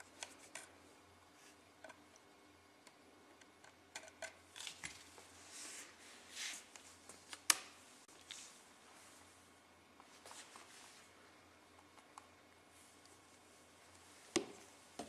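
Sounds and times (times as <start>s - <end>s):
soft scrapes: 5.3s - 6.7s.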